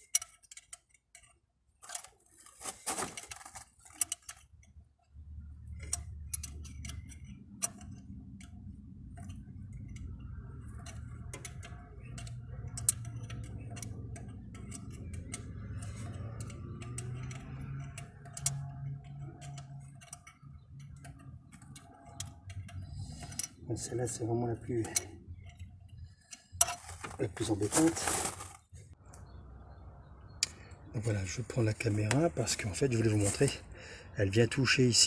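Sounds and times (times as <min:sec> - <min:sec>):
metal tool clicks: 0:00.0 - 0:02.1, 0:05.6 - 0:27.9
low steady hum: 0:02.4 - 0:34.4
ratchet wrench clicking: 0:04.0 - 0:26.9.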